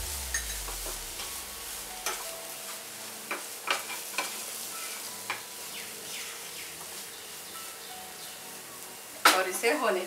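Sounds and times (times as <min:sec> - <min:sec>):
vegetables sizzling in a pan: 0:00.0 - 0:10.0.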